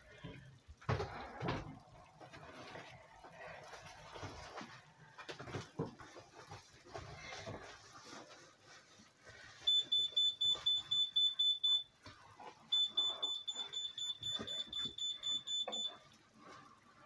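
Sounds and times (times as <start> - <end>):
rapid electronic beeps: 12.7 - 15.9.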